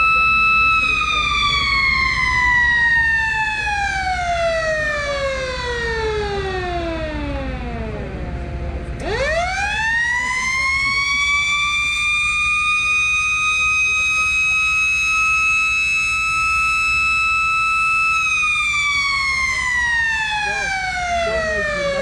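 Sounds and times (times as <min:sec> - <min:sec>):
mechanical siren wailing: 0:00.0 - 0:22.0.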